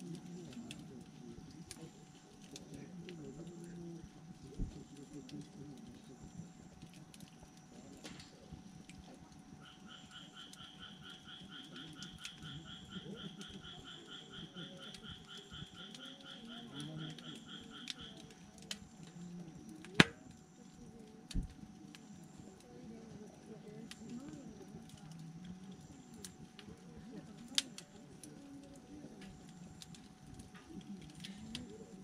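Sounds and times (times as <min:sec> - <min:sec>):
campfire crackling: 0:00.0 - 0:32.0
loud fire pop: 0:19.9 - 0:20.2.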